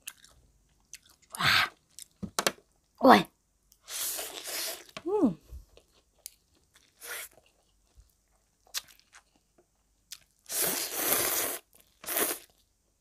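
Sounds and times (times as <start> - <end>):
person chewing: 0.0 - 2.2, 5.8 - 12.6
person slurping noodles: 3.9 - 5.0, 7.0 - 7.3, 10.5 - 12.5.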